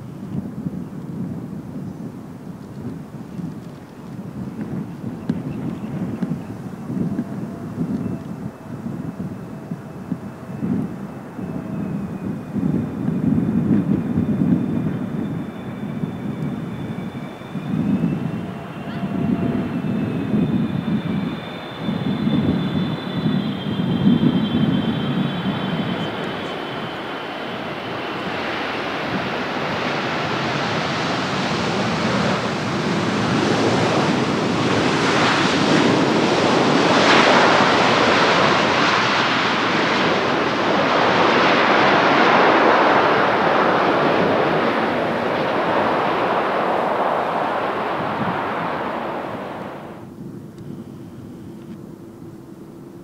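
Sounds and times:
jet engines roaring: 1.5s - 53.0s
high engine whine: 2.9s - 53.0s.

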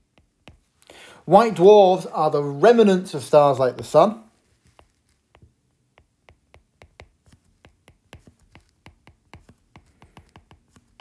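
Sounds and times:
stylus tapping on glass screen: 4.7s - 11.0s.

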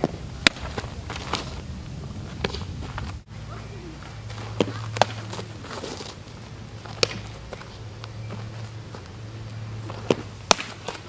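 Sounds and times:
low steady hum: 0.0s - 11.0s
ball smacking into leather glove: 4.3s - 5.9s, 6.8s - 7.7s, 9.8s - 11.0s.

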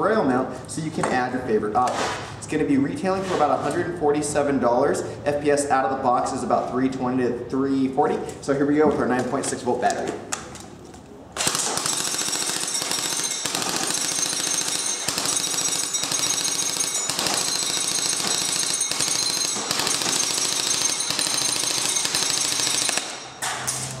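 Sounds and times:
airsoft gun firing full auto: 11.4s - 23.4s.

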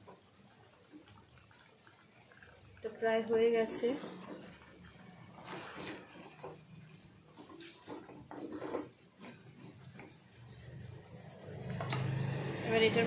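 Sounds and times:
wet gravy sounds: 0.0s - 13.0s
spatula scraping a clay pot: 3.4s - 10.5s.

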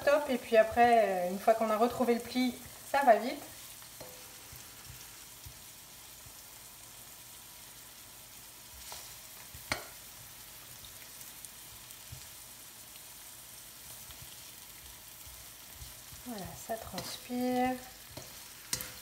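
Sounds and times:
onion sizzling in oil: 0.0s - 19.0s.

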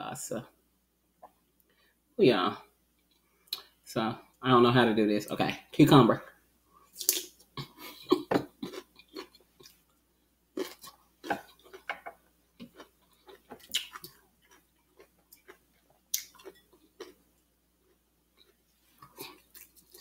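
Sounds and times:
wet mouth smacks: 7.0s - 7.3s, 13.7s - 14.1s
chewing crunches: 7.0s - 9.8s, 10.6s - 17.2s, 18.4s - 20.0s.

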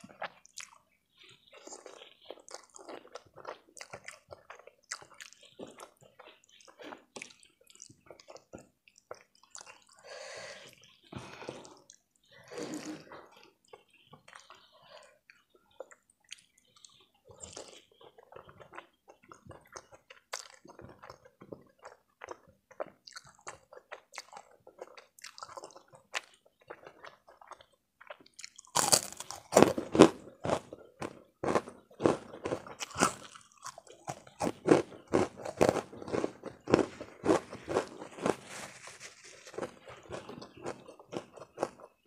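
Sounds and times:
wet chewing and lip smacks: 1.6s - 10.0s, 13.6s - 29.6s
slurping noodles: 11.4s - 13.2s.

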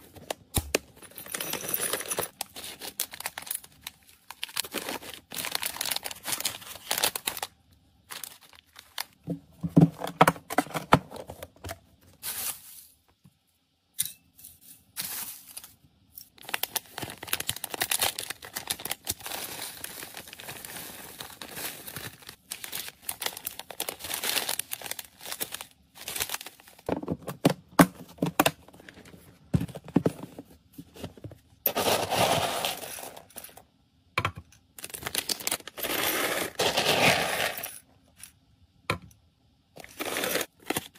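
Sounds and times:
plastic bags crinkling: 0.0s - 9.2s, 15.0s - 27.1s, 34.8s - 37.7s
dry kibble clattering into containers: 31.1s - 33.6s, 34.8s - 37.8s.

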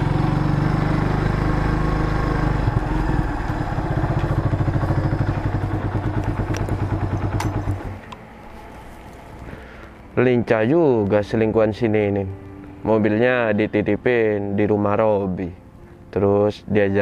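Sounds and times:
motorcycle engine running: 0.0s - 9.5s.

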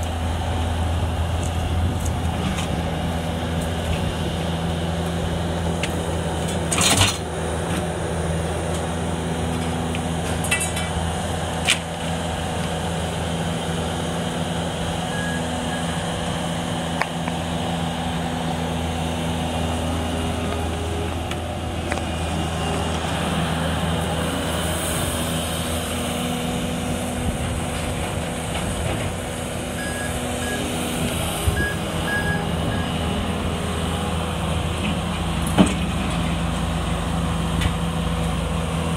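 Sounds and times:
garbage truck idling: 0.0s - 38.9s
loader diesel engine running: 0.0s - 38.9s
short high beeps: 29.8s - 30.7s.

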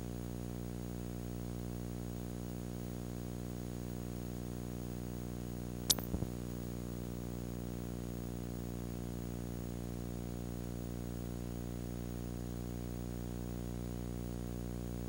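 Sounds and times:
steady electrical buzz: 5.9s - 6.7s.

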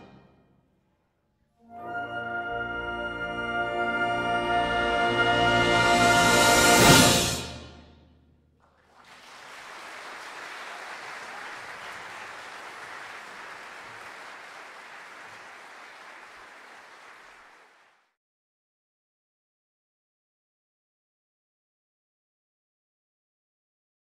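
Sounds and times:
audience applauding: 8.6s - 18.1s.

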